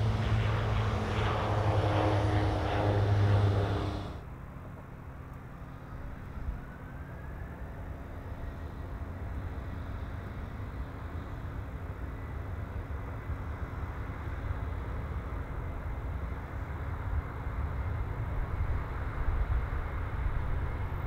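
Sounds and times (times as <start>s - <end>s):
jet engines rumbling: 0.0s - 4.8s.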